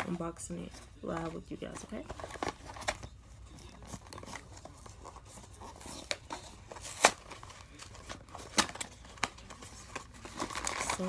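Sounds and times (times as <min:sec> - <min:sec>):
cardboard box rustling: 0:00.7 - 0:11.0
cardboard flap snapping: 0:05.6 - 0:11.0.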